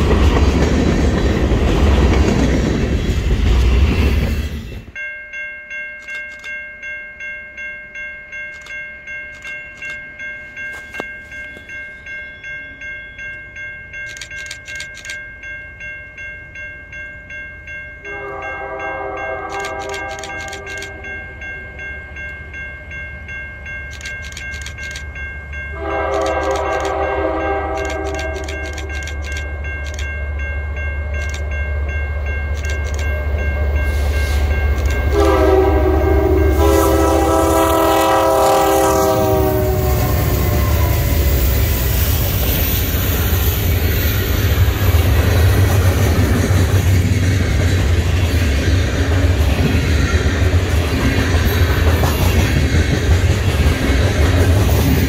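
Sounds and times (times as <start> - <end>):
bell ringing steadily: 4.9 - 46.8
locomotive air horn blasts: 18.1 - 20.7, 25.8 - 28.6, 35.1 - 41.1.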